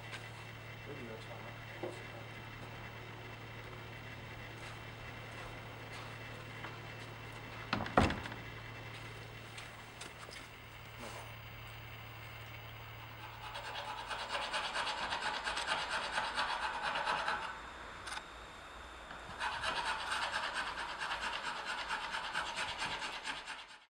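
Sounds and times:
hand file scraping wood: 13.2 - 17.5, 19.4 - 23.9.

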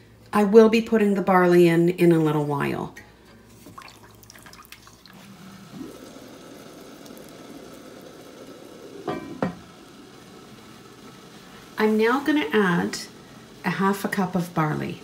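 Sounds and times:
liquid bubbling in a pot: 3.4 - 15.0.

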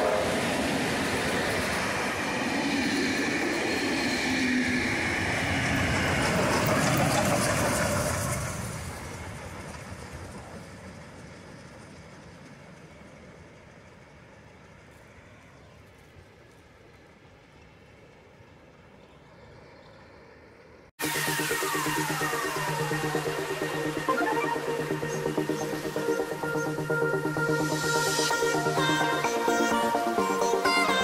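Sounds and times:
steam train rolling past: 0.0 - 31.0.

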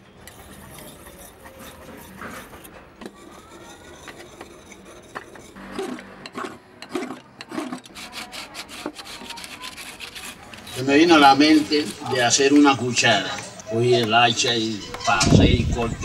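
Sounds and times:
blade scraping wooden spoon: 0.0 - 13.4
blade rubbed on whetstone: 0.3 - 5.6, 6.3 - 12.3.

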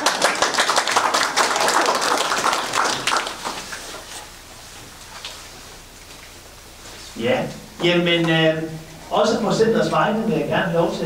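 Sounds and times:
crowd clapping: 0.0 - 4.2
room murmur: 0.0 - 11.0.

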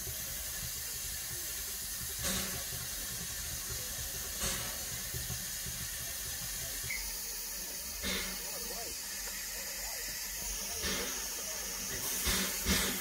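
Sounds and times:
steam hissing from locomotive: 0.0 - 13.0.

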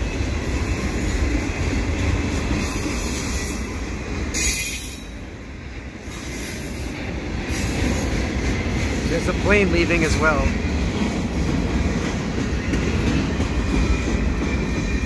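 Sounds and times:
freight train rumbling past: 0.0 - 15.0
high wheel squeal: 2.6 - 5.3.

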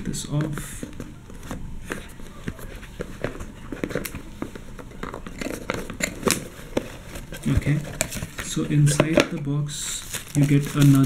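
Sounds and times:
cardboard box clicks and rustles: 5.0 - 8.6.

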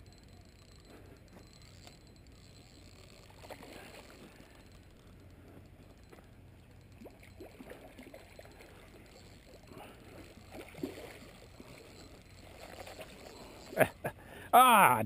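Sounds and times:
fish splashing in water: 7.0 - 13.2.

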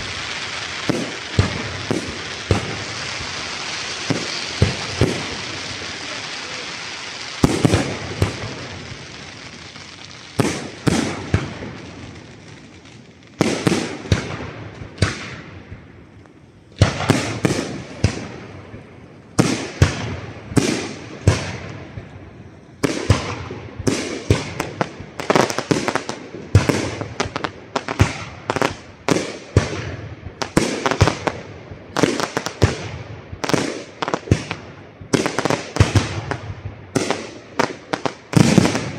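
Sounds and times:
firework shells bursting: 0.0 - 15.4
firework crackling: 0.0 - 38.9.

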